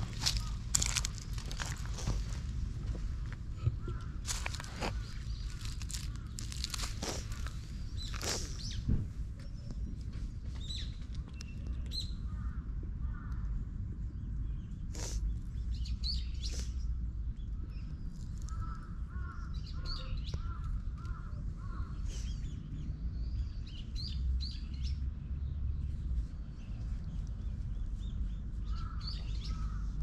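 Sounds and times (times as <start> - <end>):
birds chirping: 0.0 - 13.4, 26.4 - 30.0
steady low rumble: 0.0 - 30.0
repeated bird calls: 3.6 - 9.8, 17.7 - 22.8, 27.9 - 30.0.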